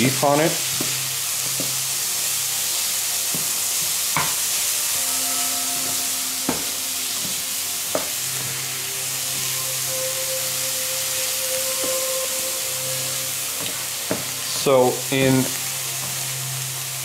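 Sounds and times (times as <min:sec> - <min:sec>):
cauliflower rice sizzling in pan: 0:00.0 - 0:17.0
spatula stirring in pan: 0:13.0 - 0:17.0.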